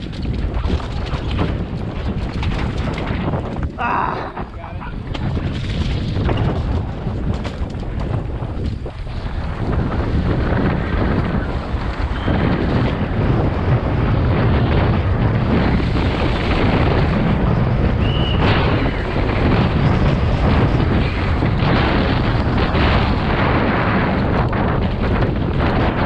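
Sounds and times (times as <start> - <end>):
bike clattering over bumps: 0.0 - 26.0
tyres rumbling on dirt: 0.0 - 26.0
wind buffeting microphone: 0.0 - 26.0.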